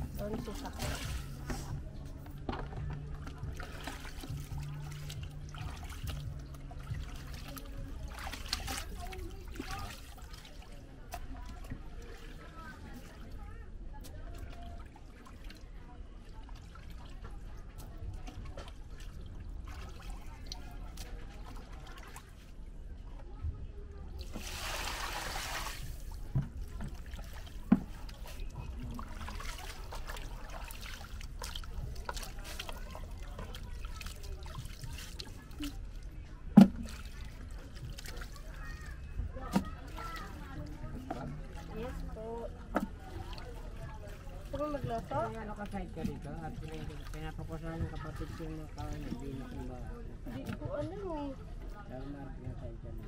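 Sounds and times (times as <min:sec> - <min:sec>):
water splashing in a bucket: 0:00.0 - 0:22.8, 0:24.1 - 0:51.8
wet dripping: 0:03.1 - 0:12.4, 0:24.2 - 0:36.0.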